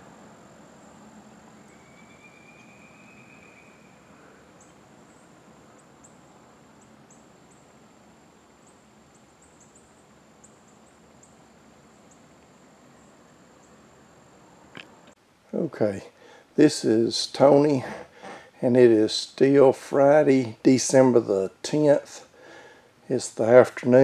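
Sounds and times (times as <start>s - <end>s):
very high chirps: 1.6s - 4.7s.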